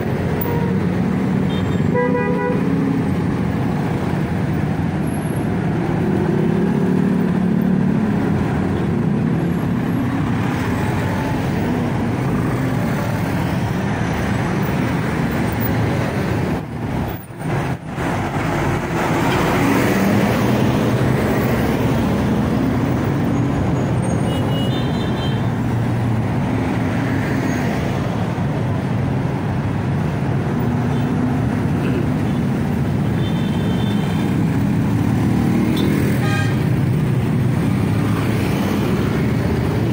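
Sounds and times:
bus passing: 0.0s - 24.6s, 25.3s - 39.9s.

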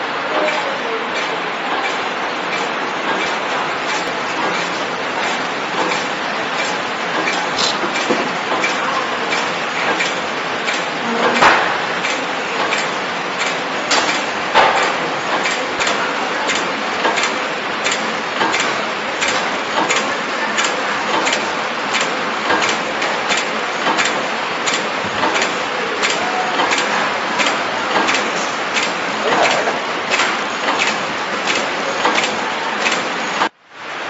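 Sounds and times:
machine whirring: 0.0s - 33.6s
machine clacking: 0.3s - 33.5s.

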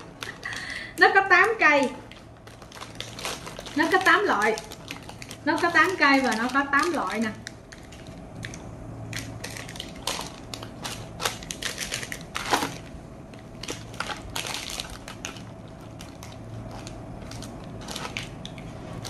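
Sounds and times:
plastic wrappers crinkling: 0.0s - 19.0s.

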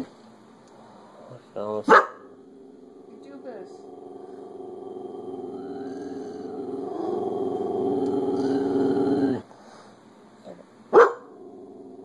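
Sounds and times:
dog growling: 1.8s - 9.5s, 11.2s - 12.0s
dog barking: 1.9s - 2.3s, 10.9s - 11.4s.

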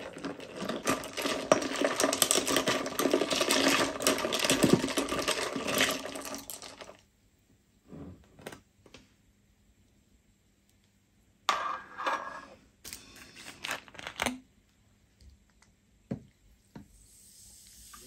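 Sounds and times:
spoon stirring ice in glass: 0.0s - 6.9s.

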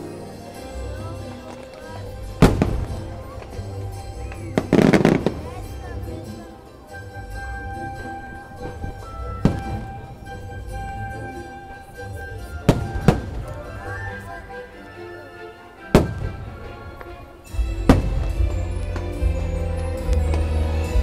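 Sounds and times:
fireworks bursting with bangs: 1.5s - 5.8s, 8.7s - 10.9s, 12.6s - 13.7s, 15.9s - 16.8s, 17.5s - 19.2s.

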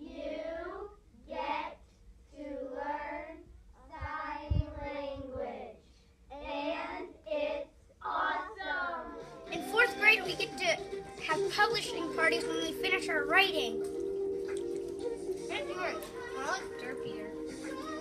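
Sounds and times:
children singing: 14.5s - 18.0s.

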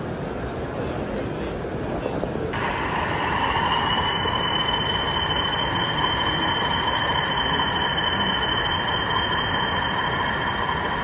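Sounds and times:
model locomotive whine: 2.6s - 11.0s.

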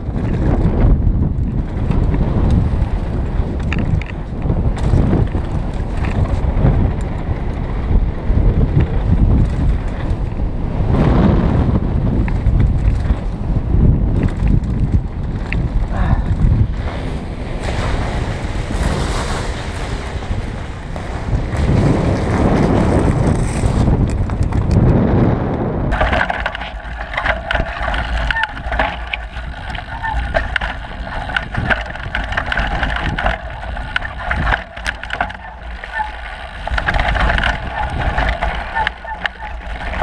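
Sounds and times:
bike rattles and clicks: 0.0s - 40.0s
wind buffeting: 0.0s - 40.0s
tyres rolling over gravel: 16.5s - 24.7s, 25.9s - 40.0s.

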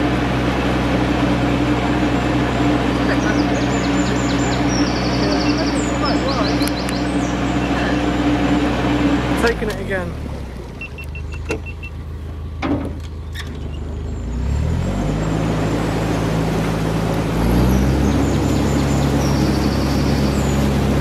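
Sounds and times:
engine knocks: 0.0s - 14.1s
diesel engine running: 0.0s - 21.0s.

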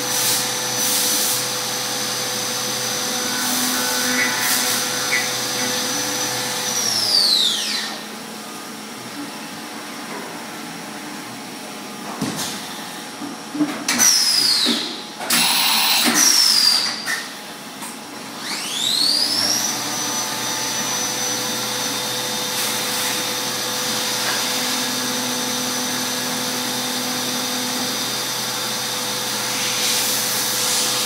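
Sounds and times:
milling machine spindle whine: 0.0s - 9.1s, 14.0s - 16.8s, 18.4s - 31.0s.

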